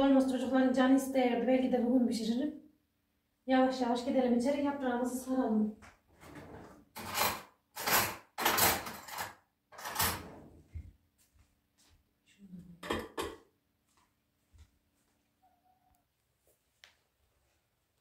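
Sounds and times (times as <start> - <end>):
rustling and scuffing: 10.5 - 12.1.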